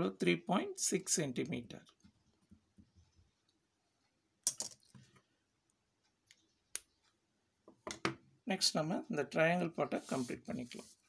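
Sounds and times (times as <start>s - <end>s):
pen scratching on paper: 10.0s - 11.0s.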